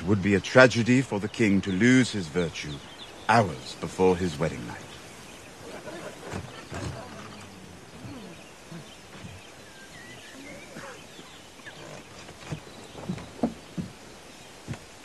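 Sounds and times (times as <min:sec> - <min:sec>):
crowd murmur: 0:05.6 - 0:08.9.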